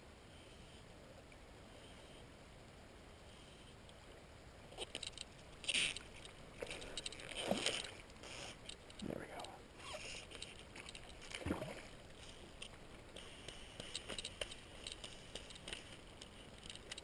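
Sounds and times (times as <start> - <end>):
fly line clicks and scrapes: 4.7 - 17.0.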